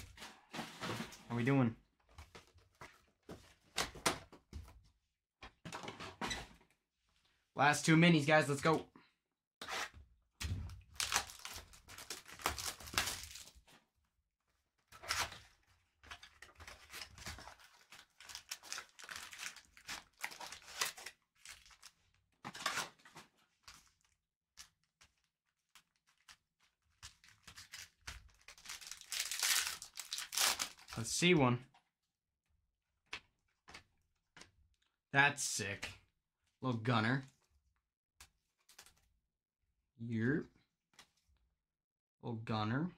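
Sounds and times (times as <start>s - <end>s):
card pack wrappers tearing: 10.9s - 13.6s, 16.2s - 21.9s, 27.1s - 31.0s.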